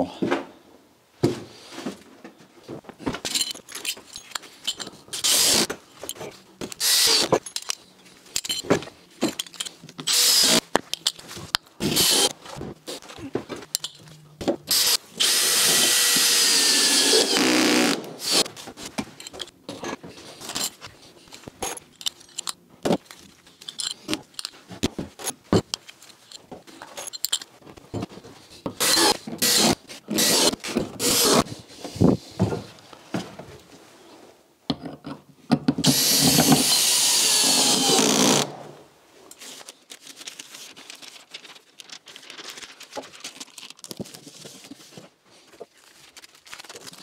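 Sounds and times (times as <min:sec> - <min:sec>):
rustling and handling noises: 0:01.2 - 0:14.7, 0:18.4 - 0:34.5, 0:39.0 - 0:47.0
power drill driving screw: 0:05.2 - 0:05.7, 0:06.8 - 0:07.4, 0:10.1 - 0:10.6, 0:11.8 - 0:12.3, 0:14.7 - 0:18.5, 0:28.8 - 0:31.5, 0:35.8 - 0:38.6.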